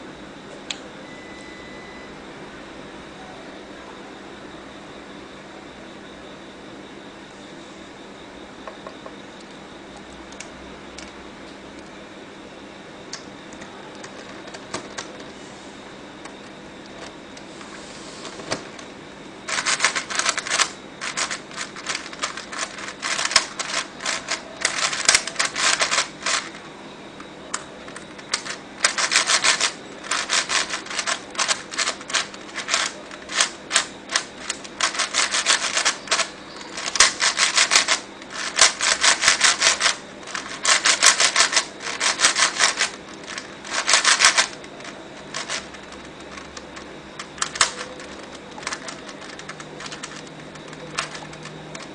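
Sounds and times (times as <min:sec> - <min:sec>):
plastic speed cube clicking: 0:19.5 - 0:26.5, 0:28.3 - 0:44.6, 0:47.4 - 0:50.2.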